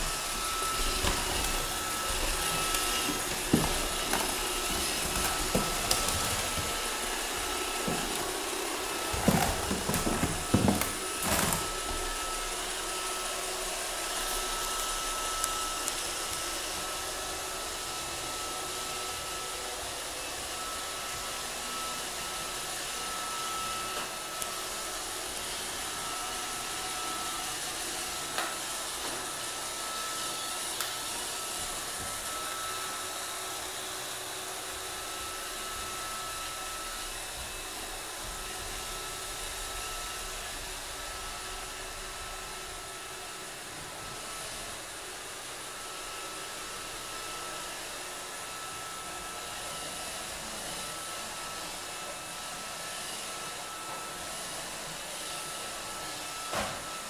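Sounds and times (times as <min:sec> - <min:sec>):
robot vacuum whirring: 0:00.0 - 0:57.0.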